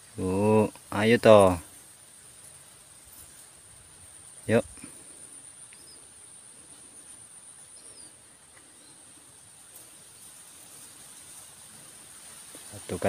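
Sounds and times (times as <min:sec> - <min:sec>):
crickets trilling: 0:00.0 - 0:13.0
faint bird chirps: 0:02.4 - 0:12.0.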